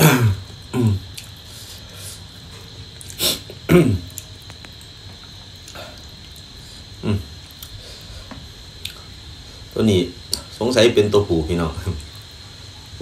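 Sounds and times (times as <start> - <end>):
faint high whine: 0.0 - 13.0
man sniffing: 0.8 - 4.0.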